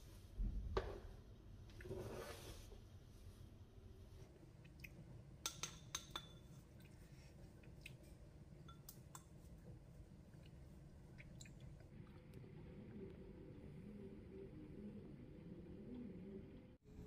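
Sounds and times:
metal spatula clinking on saucepan: 5.4 - 6.5.

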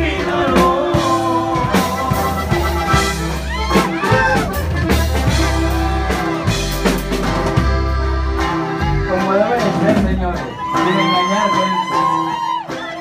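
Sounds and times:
person singing: 0.0 - 6.5, 10.5 - 13.0
brass band music: 0.0 - 13.0.

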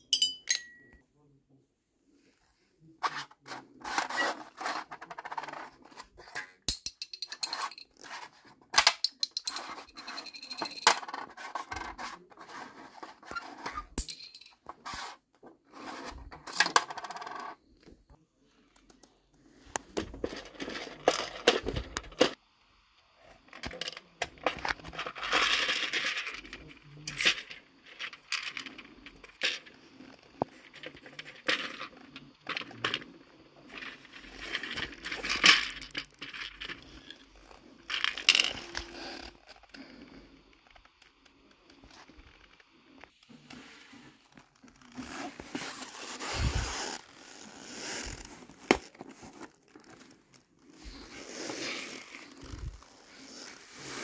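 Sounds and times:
rubbing and scraping: 3.0 - 6.7, 9.4 - 17.5, 43.3 - 54.0.

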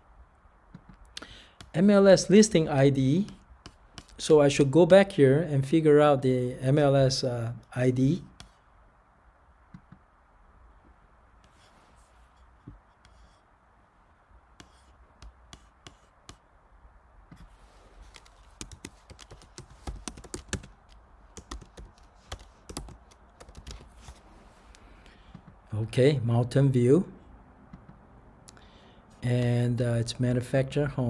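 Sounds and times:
typing on computer keyboard: 18.0 - 23.9.

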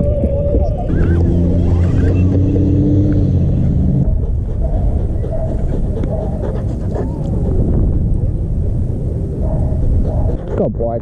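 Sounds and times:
low rumble on microphone: 0.0 - 11.0
dog panting: 4.0 - 7.7, 9.5 - 10.8.

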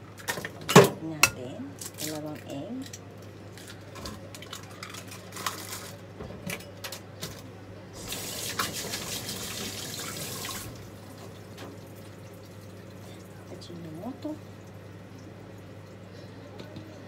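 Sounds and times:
water running into metal sink: 8.0 - 14.7.

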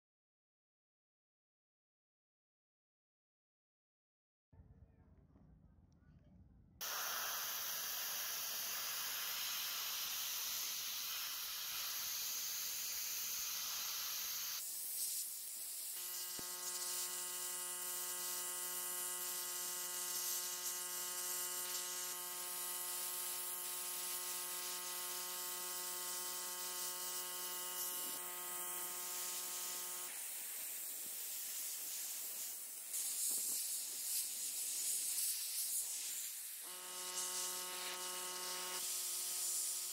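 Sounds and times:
spray paint hissing: 6.8 - 39.9
buzzing hum: 16.0 - 30.2, 36.6 - 39.9.

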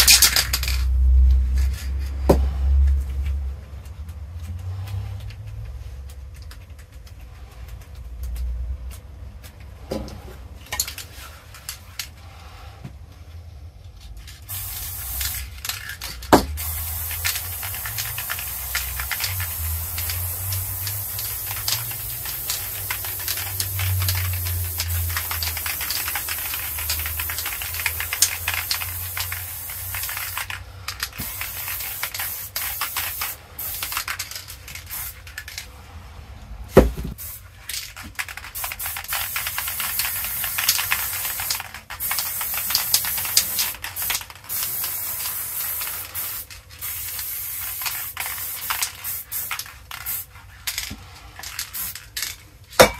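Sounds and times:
spray paint can hissing: 0.0 - 2.2, 14.4 - 35.7, 37.1 - 52.4.

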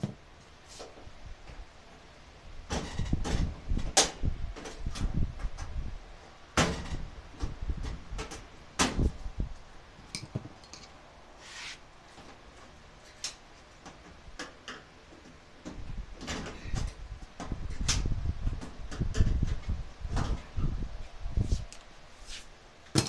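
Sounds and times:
cloth rubbing on microphone: 11.4 - 11.8, 21.3 - 22.5.

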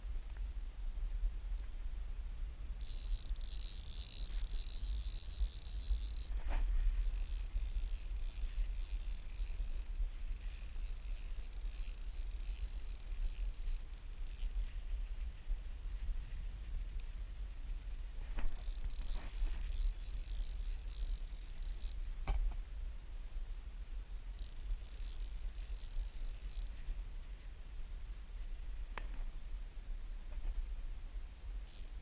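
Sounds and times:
fly reel ratchet buzzing: 2.7 - 14.9, 18.3 - 22.1, 24.3 - 26.8, 31.6 - 32.0.

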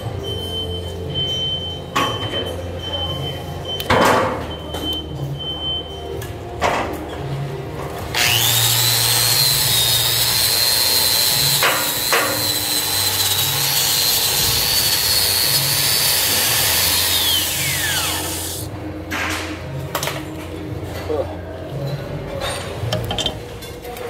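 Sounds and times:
angle grinder grinding metal: 8.1 - 18.7
grinder disc winding down: 8.2 - 18.7.

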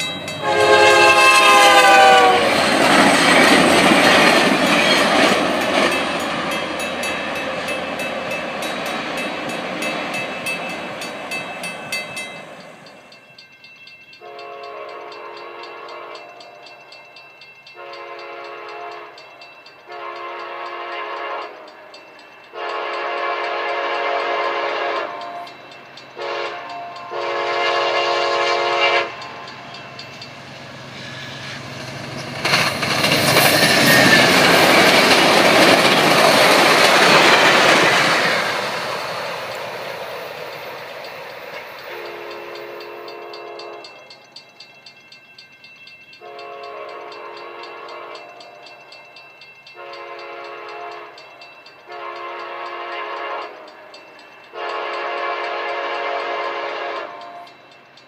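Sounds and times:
distant train horn blasts: 0.0 - 2.7, 14.2 - 16.7, 17.8 - 19.2, 19.8 - 25.6, 26.2 - 29.6, 41.8 - 44.1, 46.2 - 48.7, 49.8 - 57.6
train cars rumbling by: 0.0 - 58.0
diesel locomotive horn: 0.3 - 3.3, 14.2 - 16.4, 17.8 - 19.2, 19.9 - 21.9, 22.5 - 25.5, 26.2 - 29.5, 41.9 - 44.1, 46.2 - 48.6, 49.8 - 51.2, 51.8 - 53.9, 54.5 - 57.5.

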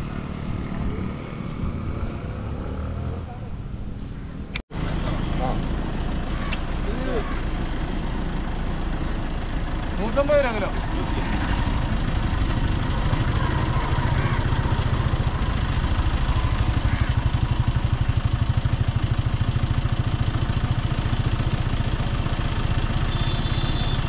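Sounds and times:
small engine idling: 4.8 - 24.0.

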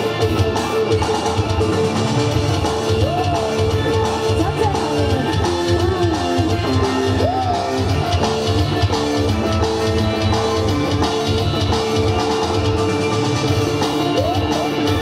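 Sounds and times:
pulsing drum beat: 0.0 - 15.0.

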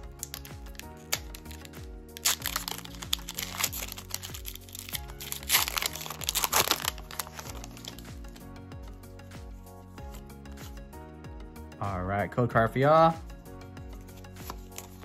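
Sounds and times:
foil wrapper tearing and crinkling: 0.0 - 8.4
background music: 0.0 - 15.0.

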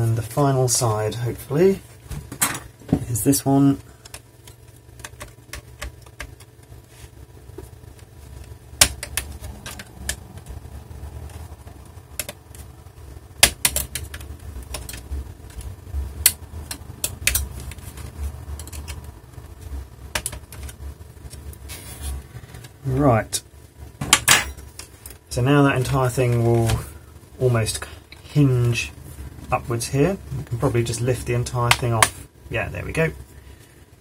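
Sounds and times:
low handling rumble: 6.6 - 13.4.

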